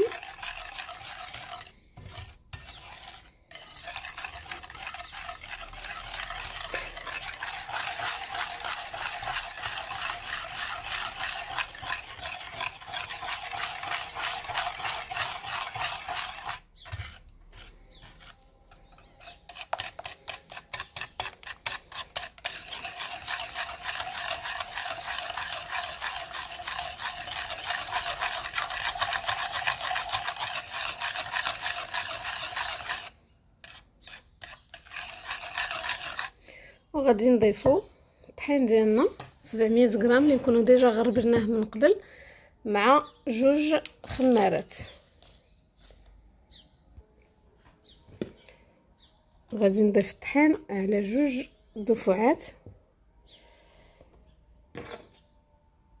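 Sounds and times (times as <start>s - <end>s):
whisk beating in ceramic bowl: 0.0s - 36.4s, 44.2s - 44.7s.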